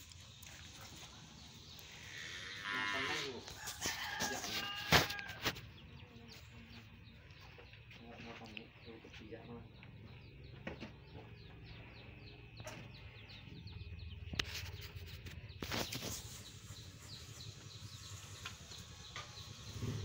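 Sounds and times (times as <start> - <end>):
bird chirping: 5.6 - 20.0.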